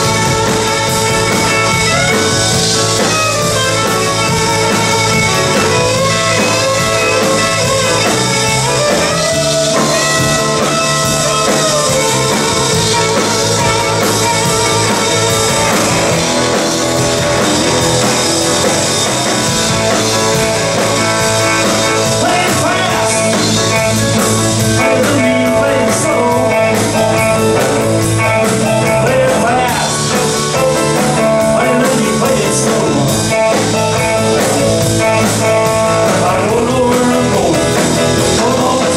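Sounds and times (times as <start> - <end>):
drums: 0.0 - 38.9
electric guitar: 0.0 - 38.9
keyboard: 0.0 - 38.9
man singing: 21.6 - 38.9.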